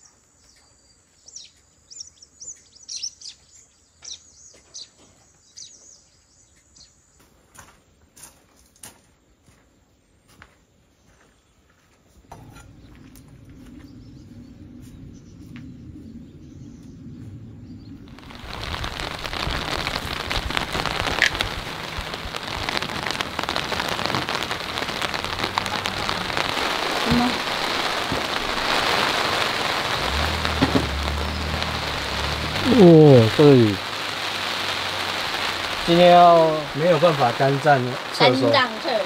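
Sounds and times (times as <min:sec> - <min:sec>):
faint low rumble: 0:12.3 - 0:38.4
heavy rain hissing: 0:17.9 - 0:39.0
sharp raindrop hits: 0:18.0 - 0:39.0.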